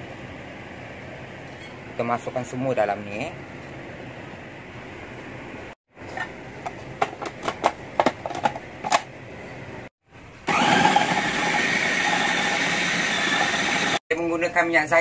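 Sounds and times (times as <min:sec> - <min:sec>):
food processor motor running: 0:10.5 - 0:14.0.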